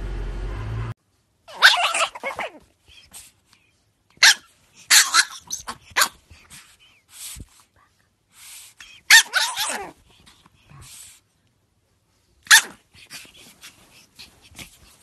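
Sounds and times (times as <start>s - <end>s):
dog barking: 4.2s - 6.2s, 9.1s - 9.8s, 12.5s - 12.8s.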